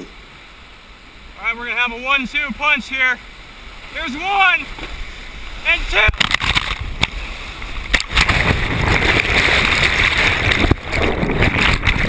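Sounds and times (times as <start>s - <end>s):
whitewater rushing: 0.0s - 12.0s
splashes hitting camera: 6.0s - 12.0s.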